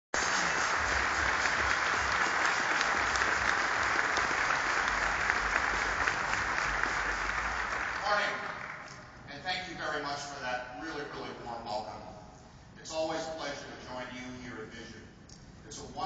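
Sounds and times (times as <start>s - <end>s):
large audience applauding: 0.2s - 9.2s.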